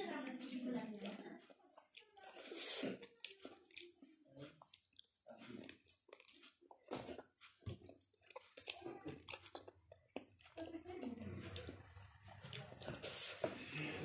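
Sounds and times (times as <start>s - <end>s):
close-up chewing: 0.4s - 13.9s
mouth smacks and clicks: 4.6s - 10.6s.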